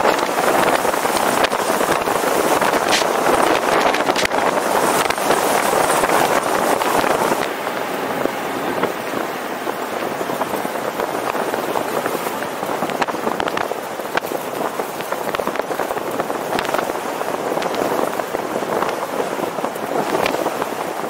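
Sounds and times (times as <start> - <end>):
scattered crackles: 0.0 - 8.9
road noise: 0.0 - 21.0
wind rushing over microphone: 0.0 - 21.0.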